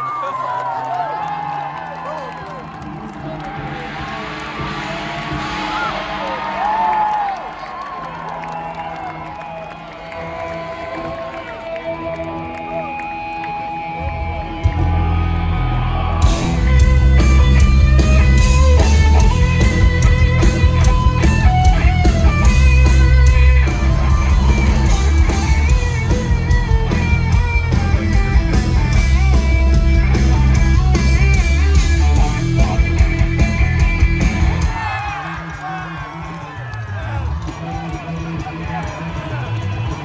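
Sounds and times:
lead electric guitar: 7.5s - 40.0s
bass guitar line: 11.0s - 35.4s.

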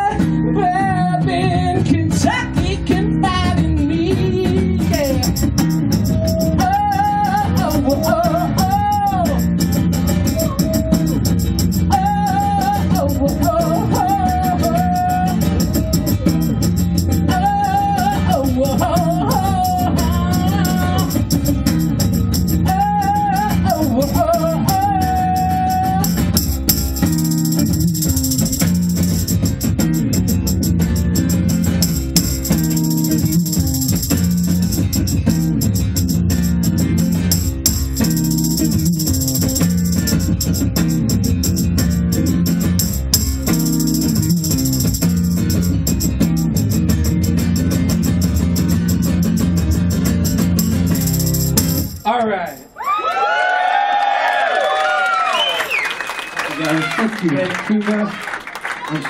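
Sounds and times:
acoustic guitar strumming: 4.4s - 52.8s
tambourine shaken: 4.9s - 52.9s.

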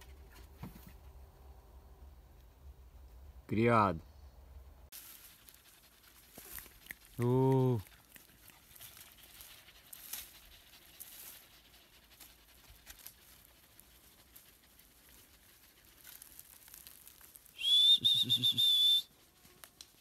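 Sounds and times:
light crackles on dry leaves: 4.9s - 20.0s
dogs panting: 5.0s - 16.6s.

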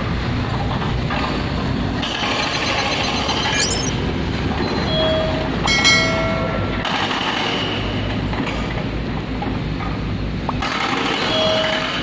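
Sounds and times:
brief high squeal: 2.3s - 4.0s.

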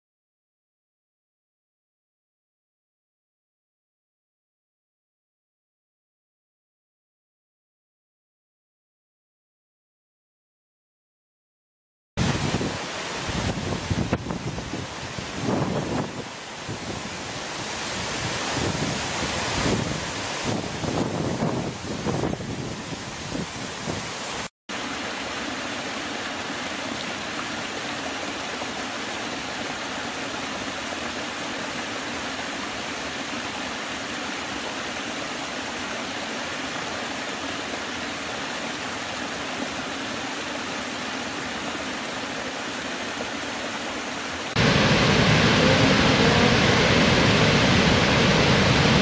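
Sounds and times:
wind on microphone: 12.2s - 24.5s, 44.6s - 49.0s
waterfall rushing: 12.2s - 49.0s.

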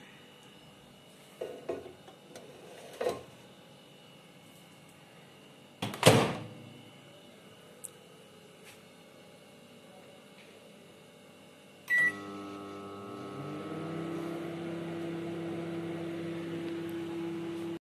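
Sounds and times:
microwave oven humming: 0.0s - 17.8s
microwave keypad beep: 11.9s - 12.4s.

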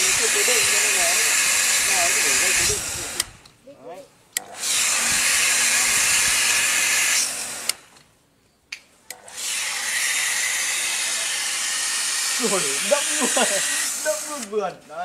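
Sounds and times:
pressure washer jet hissing: 0.0s - 3.3s, 4.6s - 7.7s, 9.3s - 14.6s
sharp clicks: 7.6s - 8.1s.

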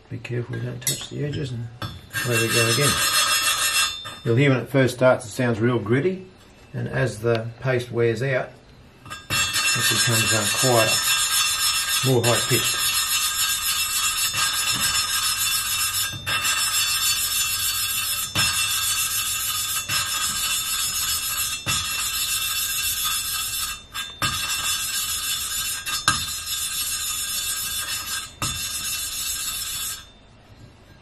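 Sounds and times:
valve grinding with gritty rasp: 2.1s - 4.3s, 9.0s - 30.2s.

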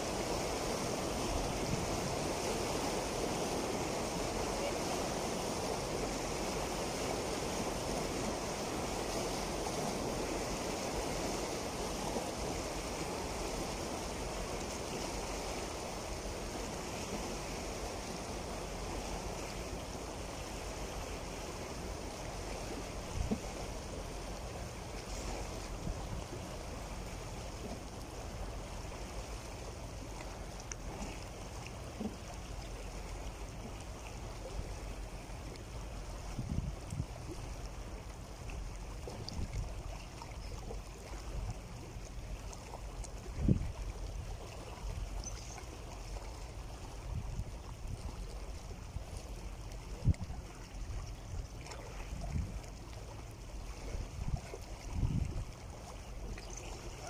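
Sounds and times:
waves breaking over rocks: 0.0s - 57.0s.

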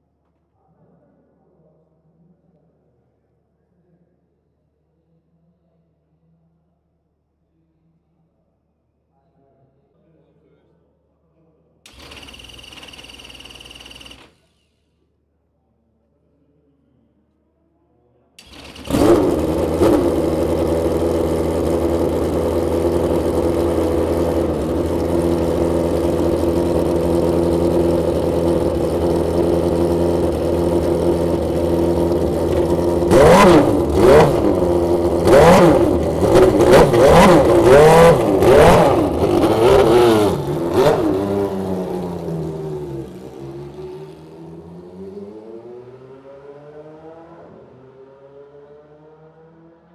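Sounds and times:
engine throttle blips: 11.9s - 14.6s, 18.4s - 46.0s
racing car engine idling: 18.4s - 44.7s.

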